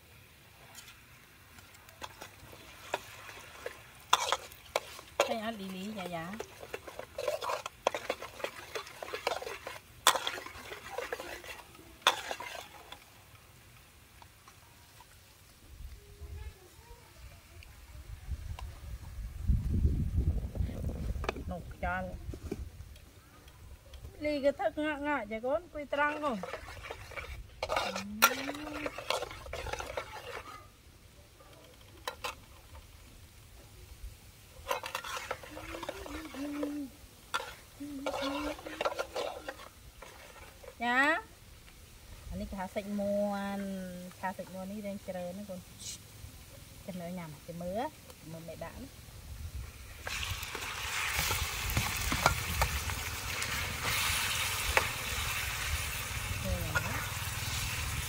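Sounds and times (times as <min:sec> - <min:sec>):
food frying: 0:00.0 - 0:15.6, 0:22.7 - 0:58.0
spatula scraping wok: 0:00.7 - 0:13.5, 0:20.8 - 0:30.9, 0:31.5 - 0:33.2, 0:34.5 - 0:45.2, 0:49.7 - 0:58.0
spatula clanking on pan: 0:26.4 - 0:30.6, 0:37.4 - 0:40.8.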